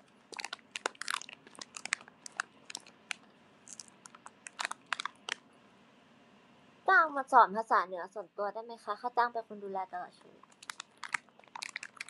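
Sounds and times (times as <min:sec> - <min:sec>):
crackers being crunched: 0:00.0 - 0:05.4, 0:10.4 - 0:12.0.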